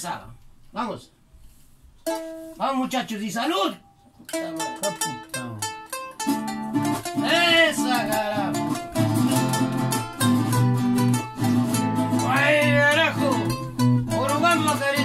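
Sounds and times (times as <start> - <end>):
acoustic guitars playing: 2.0 - 15.0
bass line: 7.0 - 15.0
man shouting: 7.2 - 8.6, 12.2 - 13.6.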